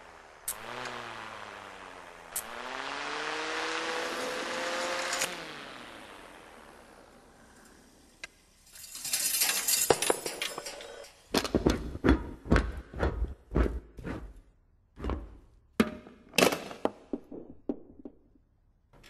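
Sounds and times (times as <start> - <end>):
metallic knocks and clinks: 8.7 - 11.5.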